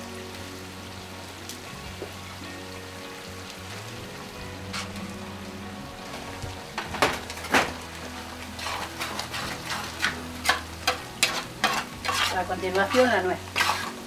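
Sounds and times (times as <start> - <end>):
frying pan sizzling: 0.0 - 14.0
metal spoon scraping pan: 8.6 - 14.0.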